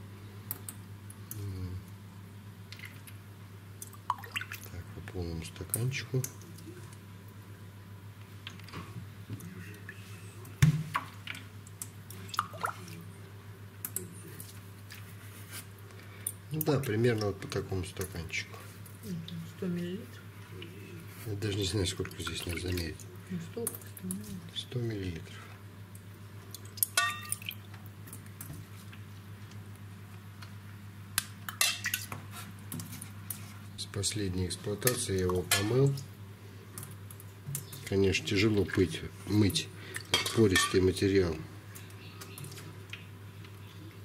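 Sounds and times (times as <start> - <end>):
steady low hum: 0.0 - 44.0
liquid dripping and trickling: 3.8 - 4.8, 10.9 - 13.1, 21.6 - 24.4, 25.9 - 29.0.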